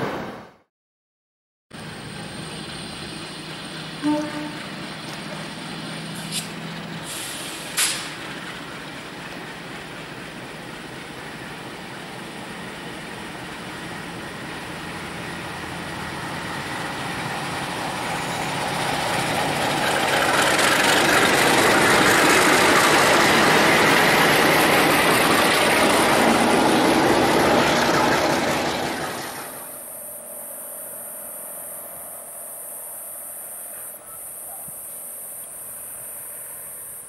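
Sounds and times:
diesel locomotive passing: 0:01.8 - 0:37.0
steady high-pitched hiss: 0:29.6 - 0:37.0.

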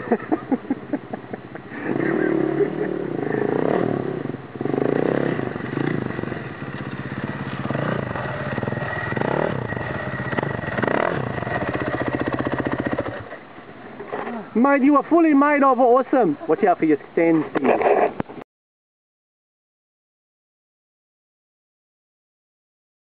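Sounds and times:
dirt bike engine revving: 0:01.7 - 0:13.4.

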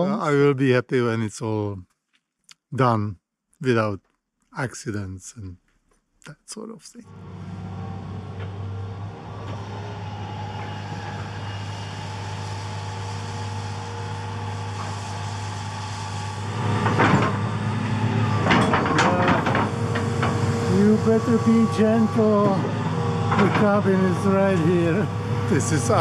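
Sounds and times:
excavator diesel engine running: 0:07.1 - 0:26.0
machine clanks and knocks: 0:16.8 - 0:17.4, 0:18.3 - 0:21.8, 0:23.3 - 0:24.3.

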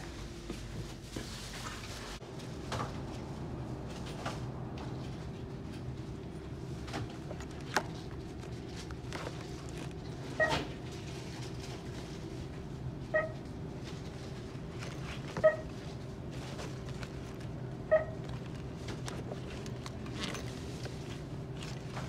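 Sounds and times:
shop background hum: 0:00.0 - 0:22.0
notebooks clicking and knocking: 0:06.8 - 0:10.7, 0:18.2 - 0:22.0.

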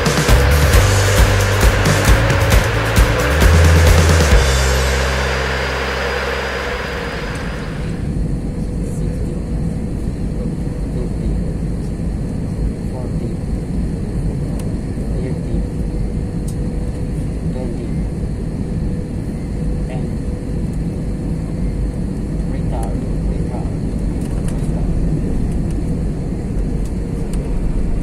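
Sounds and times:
background music: 0:00.0 - 0:07.8
rushing air: 0:00.0 - 0:08.4
airplane engines rumbling: 0:00.0 - 0:28.0
steady cabin hum: 0:00.0 - 0:28.0.

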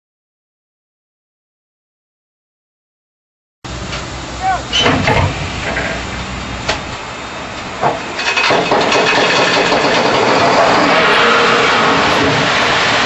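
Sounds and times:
loud steady rushing noise: 0:03.7 - 0:13.0
knocks: 0:07.8 - 0:10.4.

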